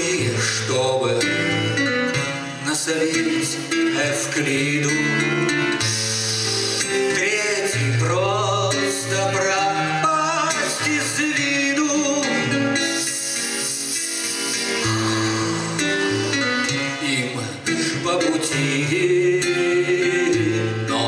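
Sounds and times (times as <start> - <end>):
acoustic guitar: 0.0 - 21.0
man singing: 0.0 - 21.0.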